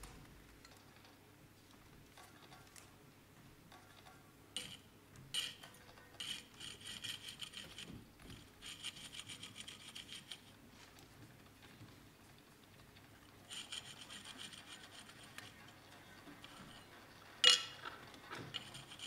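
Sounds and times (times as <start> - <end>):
rapid rasping scraping strokes: 6.2 - 7.9, 8.6 - 10.5, 13.5 - 15.8, 18.4 - 19.0.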